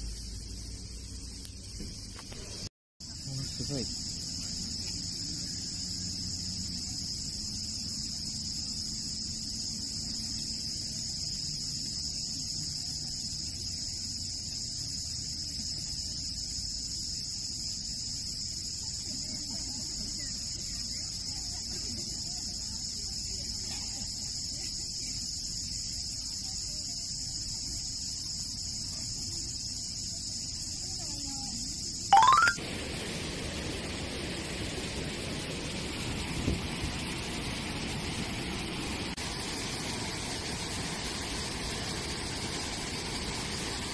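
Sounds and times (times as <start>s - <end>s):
cicadas singing: 0.0s - 33.2s.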